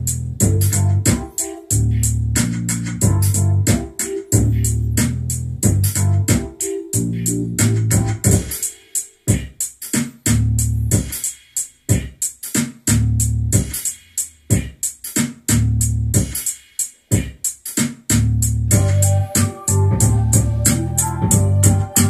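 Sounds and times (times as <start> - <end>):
deep bass line: 0.0 - 8.4, 10.3 - 11.0, 18.3 - 22.0
drum machine beat: 0.0 - 22.0.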